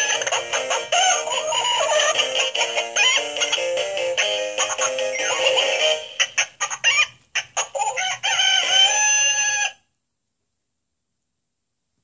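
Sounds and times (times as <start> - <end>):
electronic toy voice singing: 0.0 - 6.2
electronic toy clucking: 0.0 - 9.8
electronic rooster crow: 8.2 - 9.8.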